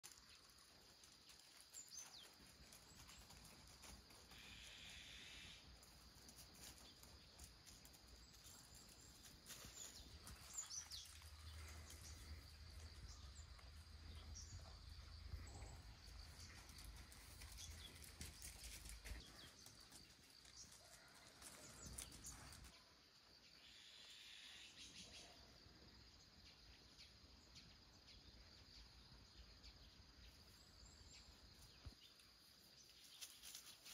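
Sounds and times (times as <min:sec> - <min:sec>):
short bird chirps: 0:04.4 - 0:05.6, 0:23.6 - 0:25.4.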